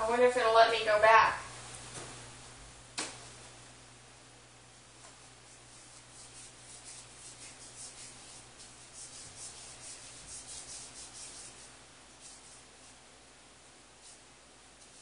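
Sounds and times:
soft rhythmic scraping strokes: 0:05.2 - 0:13.0.

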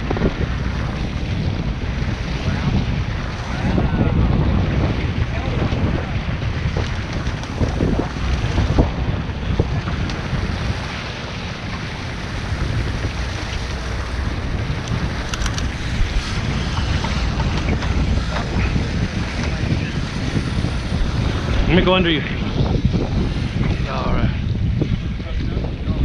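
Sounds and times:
water rushing along boat hull: 0:00.0 - 0:26.0
wind buffeting microphone: 0:00.0 - 0:26.0.

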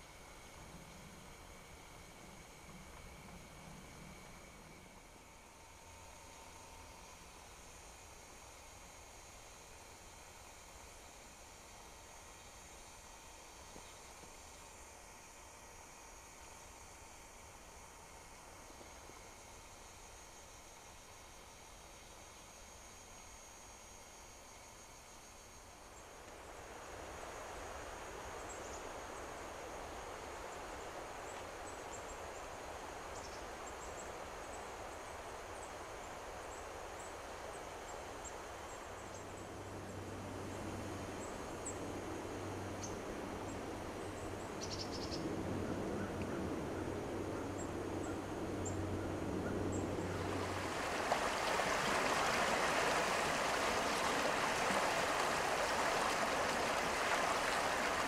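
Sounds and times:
river water rushing: 0:49.9 - 0:58.0.

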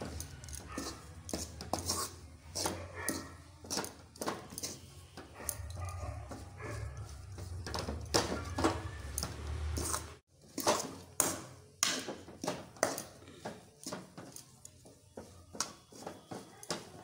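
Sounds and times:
spoon scraping metal pan: 0:00.0 - 0:05.4, 0:06.4 - 0:11.4.

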